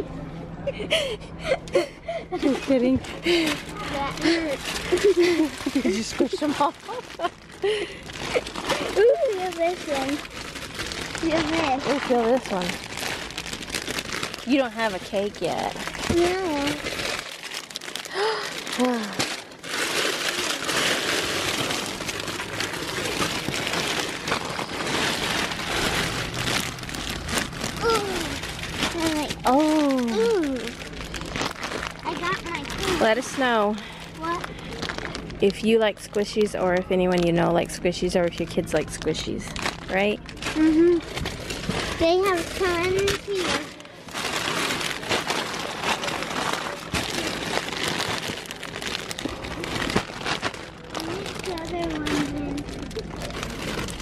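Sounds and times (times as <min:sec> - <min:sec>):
plastic bags crinkling: 0:02.4 - 0:54.0.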